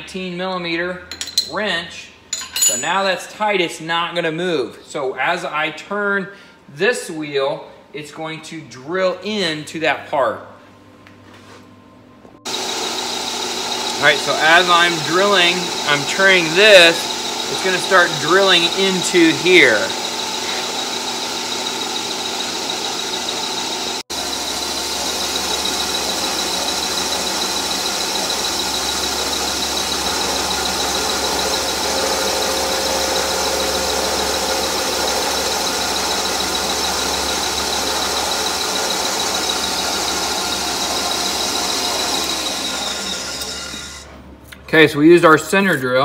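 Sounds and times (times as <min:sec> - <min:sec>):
high drilling whine: 0:12.4 - 0:44.2
metal lathe running: 0:12.5 - 0:44.2.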